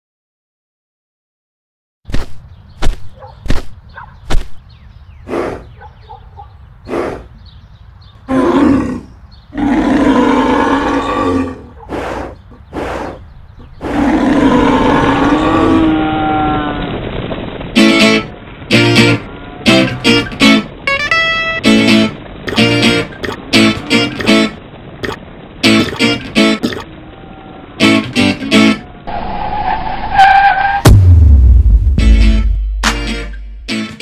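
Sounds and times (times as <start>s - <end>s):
deep animal roars: 8.3s - 13.2s, 13.8s - 17.0s.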